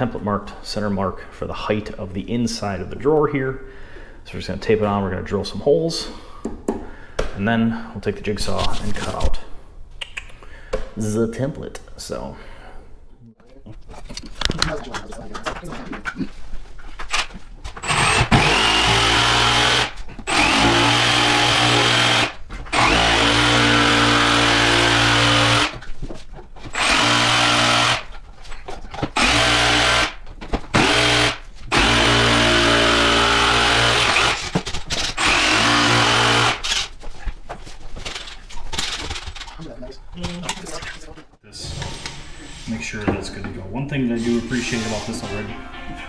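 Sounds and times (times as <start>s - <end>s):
jigsaw cutting wood: 17.8s - 25.8s, 26.7s - 28.1s, 29.2s - 36.9s.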